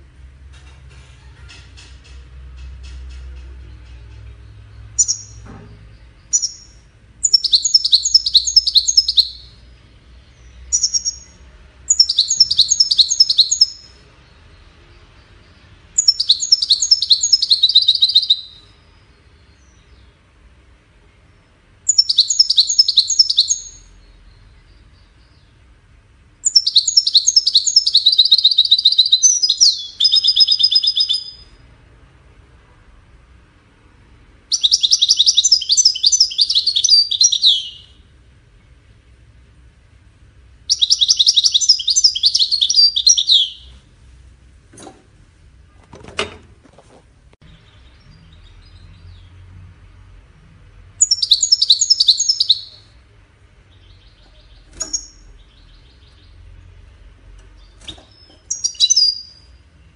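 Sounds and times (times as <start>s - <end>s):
finch twittering song: 1.8s - 20.3s, 21.2s - 25.7s, 26.4s - 31.6s, 34.4s - 38.0s, 40.6s - 43.8s, 47.4s - 49.6s, 50.9s - 59.9s.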